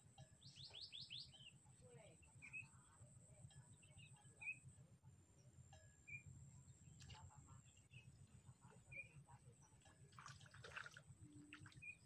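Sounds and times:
bird chirps: 0.4 - 1.6, 2.2 - 2.8, 11.5 - 12.0
fish splashing at surface: 10.2 - 11.0.

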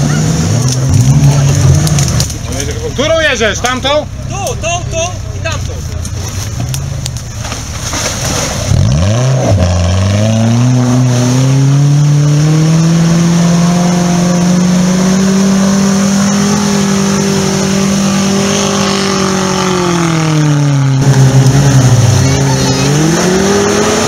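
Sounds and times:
mud and water churned by wheels: 0.0 - 24.0
engine revving hard: 8.7 - 24.0.

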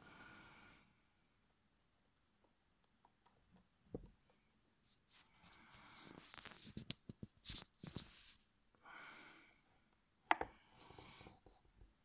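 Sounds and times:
soft hiss: 4.0 - 11.9.

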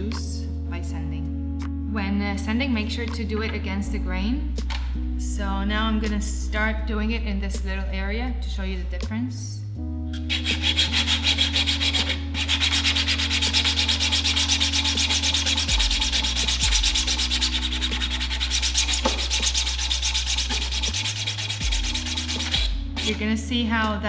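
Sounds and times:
sanding sponge rubbing plastic: 10.2 - 23.2.

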